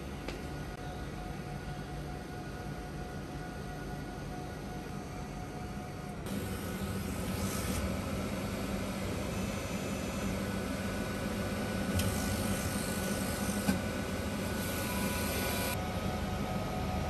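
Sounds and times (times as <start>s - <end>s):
vending machine humming: 0.0s - 17.0s.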